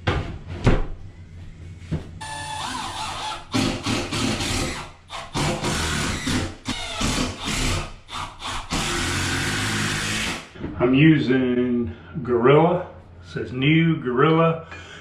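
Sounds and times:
cordless drill running: 0:02.2 - 0:10.4.

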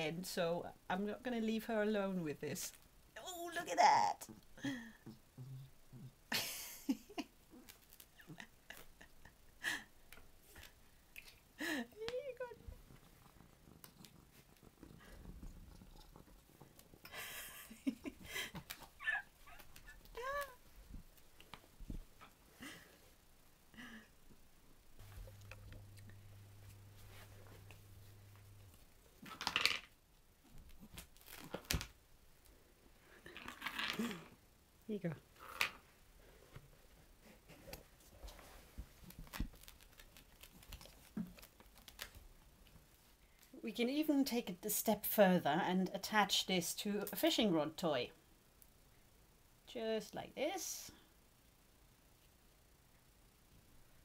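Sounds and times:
low steady hum: 0:00.0 - 0:54.0
cat grunts and chirps: 0:12.8 - 0:17.1
hand stroking fur rustle: 0:25.0 - 0:28.9.

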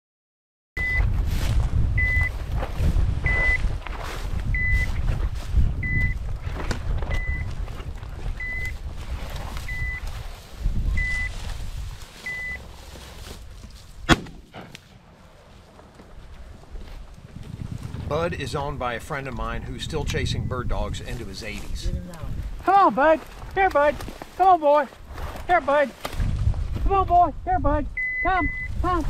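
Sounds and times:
short high beeps: 0:00.8 - 0:01.0, 0:02.0 - 0:02.3, 0:03.2 - 0:03.6, 0:04.6 - 0:04.9, 0:05.8 - 0:06.2, 0:08.4 - 0:08.7, 0:09.7 - 0:10.0, 0:11.0 - 0:11.3, 0:12.3 - 0:12.6, 0:28.0 - 0:28.8
wind rumble on microphone: 0:00.8 - 0:12.8, 0:16.1 - 0:24.2, 0:25.0 - 0:29.0
shotgun shot: 0:14.0 - 0:14.8.

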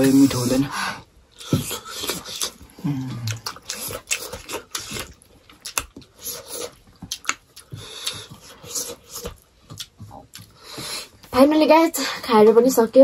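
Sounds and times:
chewing and mouth smacks: 0:01.3 - 0:11.0.

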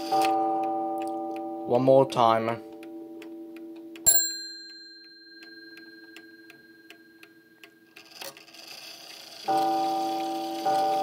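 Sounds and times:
mantle clock ticking: 0:00.0 - 0:11.0
small clock bell struck: 0:04.0 - 0:08.2, 0:09.4 - 0:11.0.

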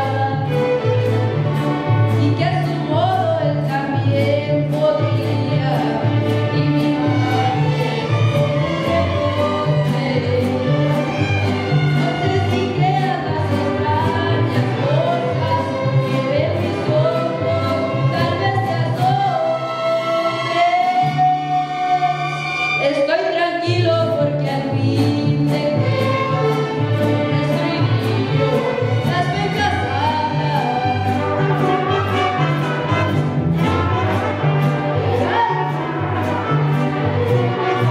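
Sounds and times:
mariachi band playing: 0:00.0 - 0:37.9.

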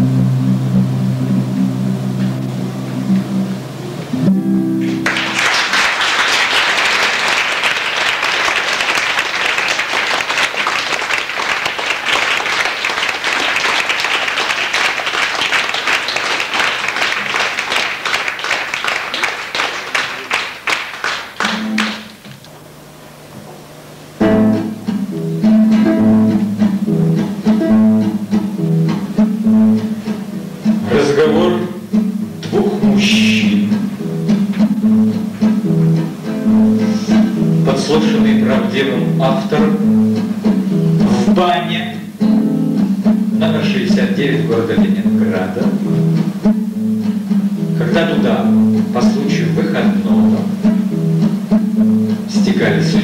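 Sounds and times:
acoustic guitar: 0:00.0 - 0:05.7, 0:21.4 - 0:22.5, 0:23.2 - 0:53.0
audience applauding: 0:04.8 - 0:22.3.

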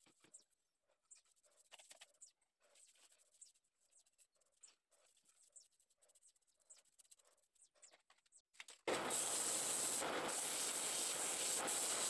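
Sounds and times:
paintbrush bristles scratching: 0:01.1 - 0:07.9.

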